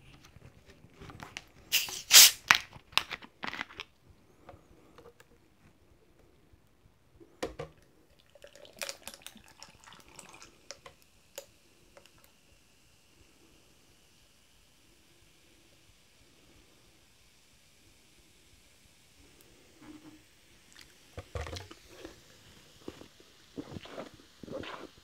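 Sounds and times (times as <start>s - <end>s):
plastic bottle crinkling: 0.5s - 4.0s, 21.2s - 22.2s
gas hissing from bottle: 1.6s - 2.5s, 10.6s - 25.0s
soda fizzing over ice: 1.7s - 2.5s, 7.9s - 17.2s, 20.6s - 25.0s.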